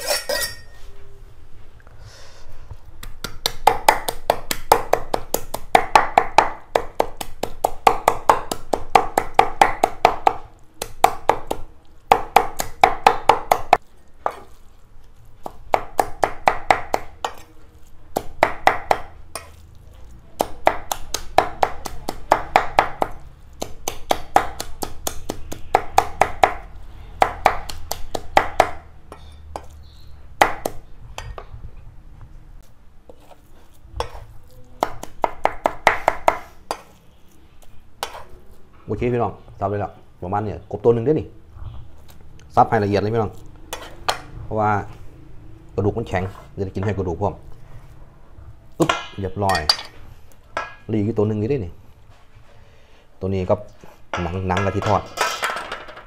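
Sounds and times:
cleaver chopping on wooden block: 18.2 - 19.5, 30.4 - 30.8, 34.8 - 36.9.

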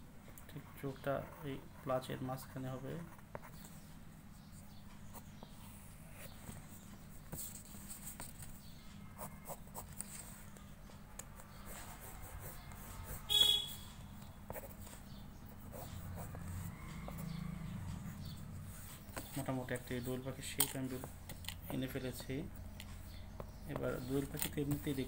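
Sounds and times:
pencil scratching on paper: 11.4 - 13.4, 14.5 - 17.4.

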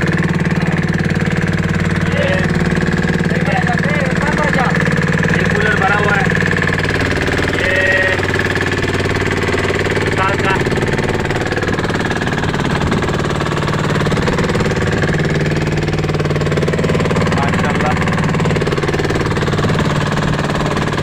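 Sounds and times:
boat engine knocking drone: 0.0 - 21.0.

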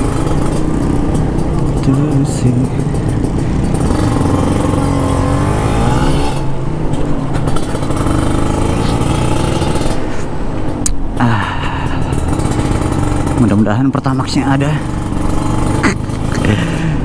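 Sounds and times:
motorcycle engine revving: 0.0 - 17.0.

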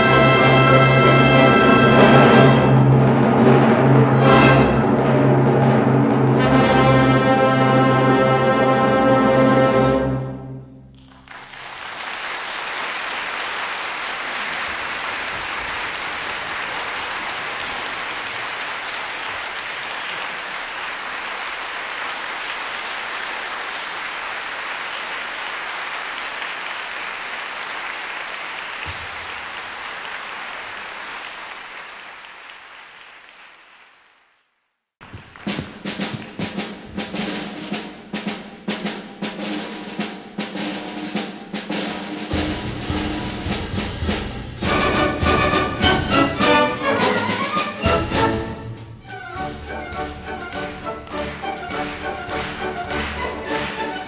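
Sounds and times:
audience applauding: 10.9 - 37.7, 49.2 - 54.0
bass drum: 35.0 - 37.7
snare drum strokes: 35.0 - 54.0
cymbals: 35.5 - 54.0.

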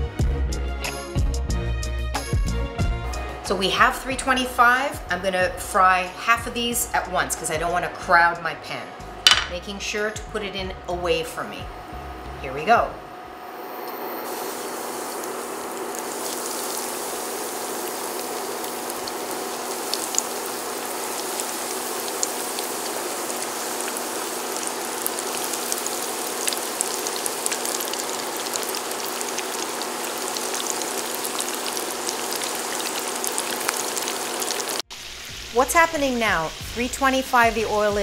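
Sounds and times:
chicken deep-frying in oil: 13.5 - 38.0.

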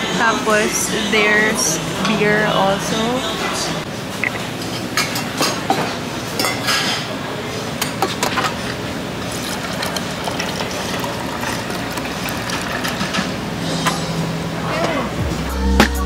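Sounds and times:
restaurant background din: 0.0 - 15.2
dishes and utensils clinking: 4.6 - 7.2.

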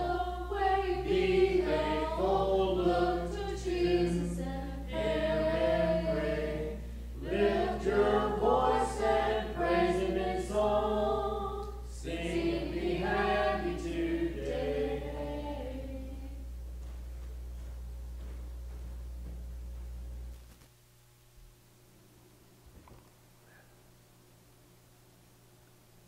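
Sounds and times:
voices singing a hymn a cappella: 0.0 - 16.5.

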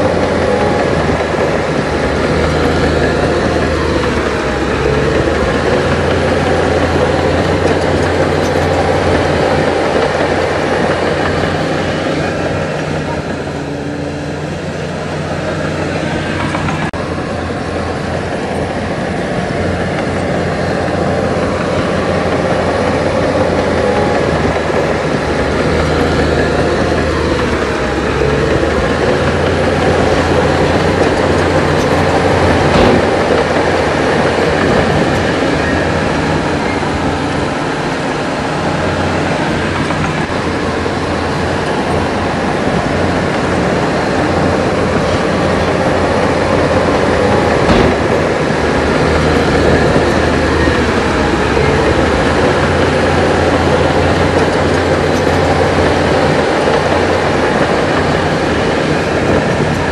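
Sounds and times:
heavy diesel engine running: 0.0 - 59.9.

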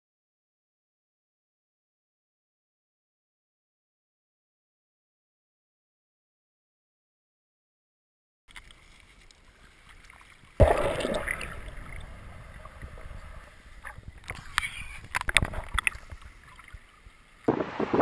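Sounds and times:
clicks and knocks underwater: 8.5 - 16.9
underwater water rush: 9.7 - 18.0
underwater gurgling: 10.1 - 18.0.

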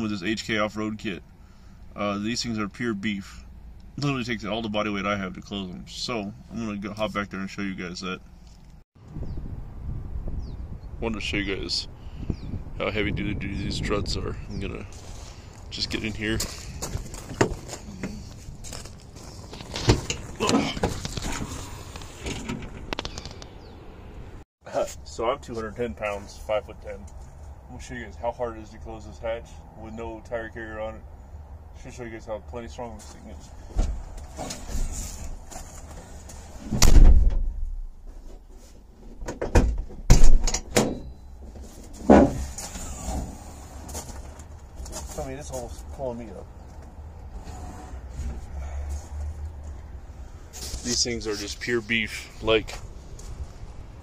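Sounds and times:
car hatch knocks and thumps: 39.2 - 41.0, 42.0 - 42.5.

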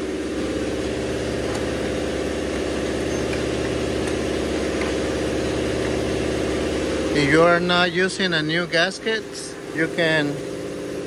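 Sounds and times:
motor idling drone: 0.0 - 11.0.

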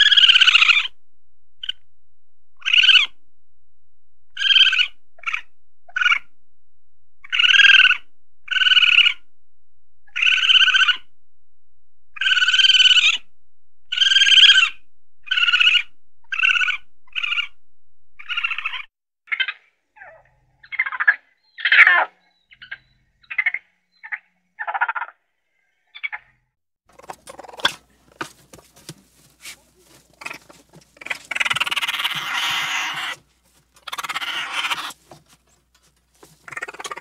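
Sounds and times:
raccoon trilling calls: 0.0 - 1.0, 2.6 - 3.2, 4.4 - 6.3, 7.2 - 9.2, 10.1 - 11.1, 12.2 - 13.3, 13.9 - 17.6, 18.2 - 25.2, 26.9 - 37.0.

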